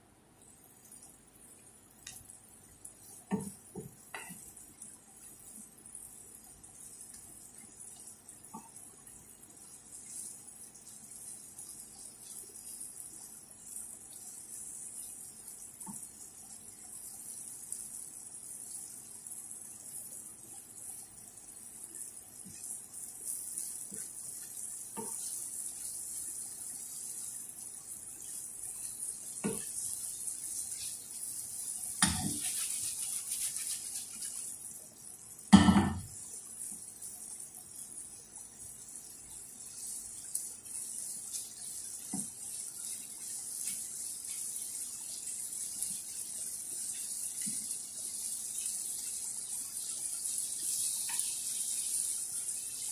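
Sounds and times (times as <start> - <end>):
food sizzling in a frying pan: 0.4 - 52.9
wooden spoon knocking on pan: 3.3 - 4.4, 32.0 - 32.5, 35.5 - 36.1.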